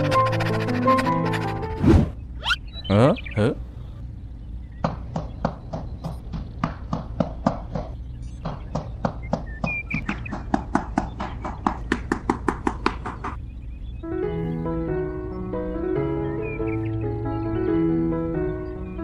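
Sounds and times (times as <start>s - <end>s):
hammer tapping wooden post: 4.8s - 13.4s.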